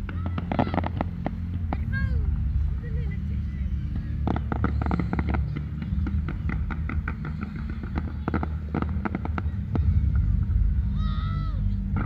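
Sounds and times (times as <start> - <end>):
fireworks crackling and popping: 0.0 - 2.2, 3.8 - 10.8
low rumble: 0.0 - 12.0.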